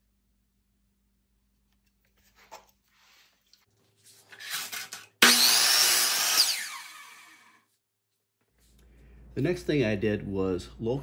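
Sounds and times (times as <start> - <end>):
saw cutting through board: 4.4 - 7.6
miter saw running: 5.2 - 7.6.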